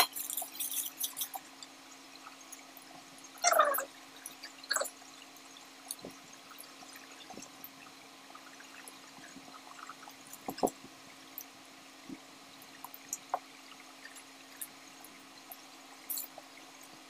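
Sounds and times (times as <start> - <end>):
wet eating and chewing: 0.0 - 7.8, 12.7 - 16.9.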